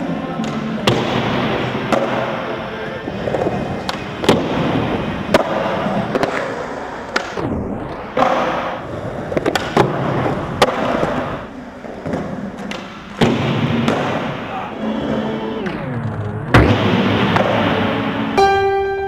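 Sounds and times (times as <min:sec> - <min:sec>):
skateboard wheels rolling: 0:01.8 - 0:18.4
skateboard clacking: 0:03.2 - 0:07.4, 0:08.2 - 0:14.4.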